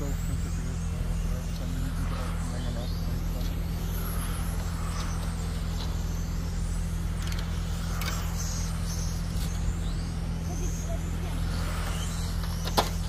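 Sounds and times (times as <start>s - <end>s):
low hum: 0.0s - 13.0s
toy car motors whining: 0.0s - 13.0s.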